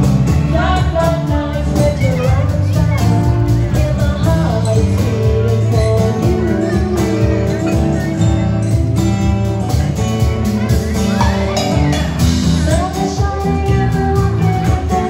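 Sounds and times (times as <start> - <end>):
woman singing: 0.0 - 9.0, 12.4 - 15.0
acoustic guitar: 0.0 - 15.0
bass: 0.0 - 15.0.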